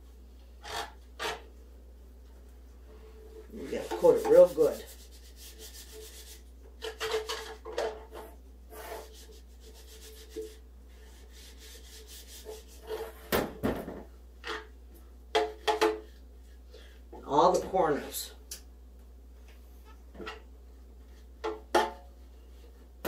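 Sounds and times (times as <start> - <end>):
rubbing inside metal pan: 3.5 - 13.3.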